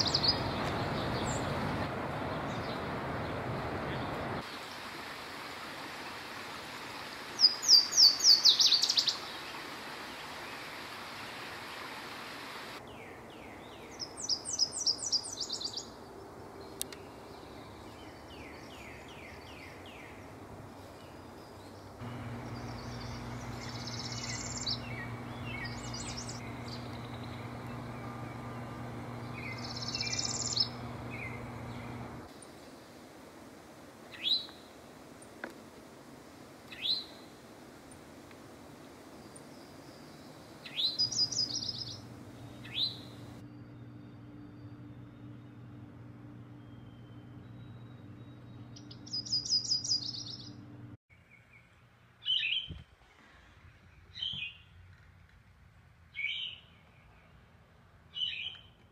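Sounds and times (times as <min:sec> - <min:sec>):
warbler singing high repeated notes: 0:00.0 - 0:01.8, 0:07.4 - 0:09.6, 0:12.8 - 0:20.4, 0:21.1 - 0:32.3, 0:39.2 - 0:50.8
steady low hum: 0:21.7 - 0:34.0, 0:37.4 - 0:51.0
buzzy bird trills: 0:22.1 - 0:32.3, 0:40.7 - 0:50.7
clear ringing bird notes: 0:41.1 - 0:50.7.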